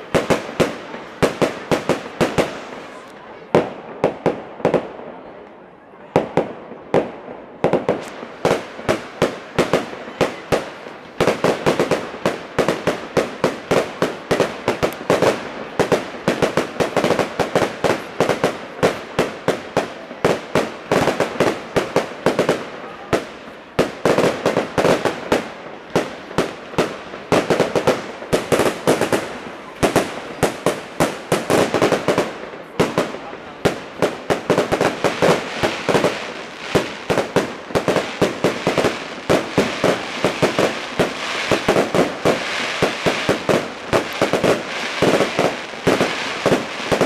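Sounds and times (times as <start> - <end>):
fireworks bangs and crackles: 0.0 - 47.0.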